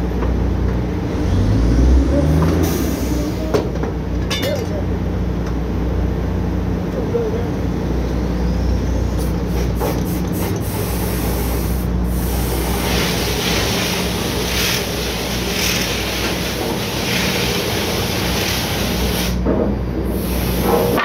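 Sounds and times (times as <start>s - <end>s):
drilling rig machinery running: 9.1s - 21.0s
bursts of hissing: 9.2s - 19.4s.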